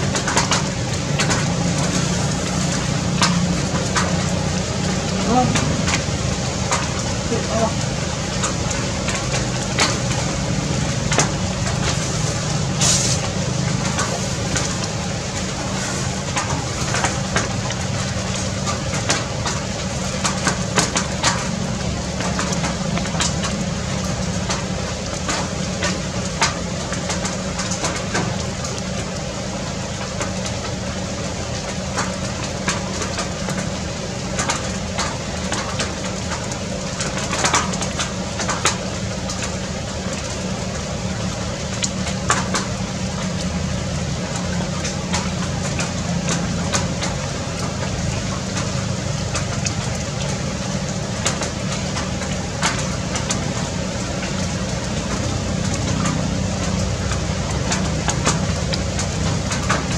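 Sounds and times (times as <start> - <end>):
noisy background: 0.0 - 59.9.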